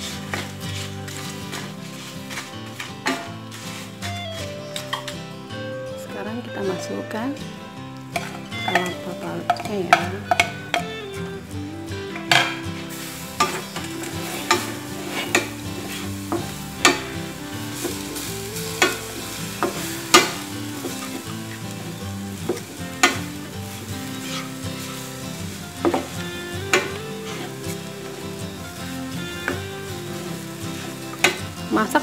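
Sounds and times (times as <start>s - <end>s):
spatula scraping metal pan: 0.0s - 5.2s, 8.2s - 11.0s, 12.1s - 32.0s
light sizzle: 0.0s - 32.0s
quiet background music: 0.0s - 32.0s.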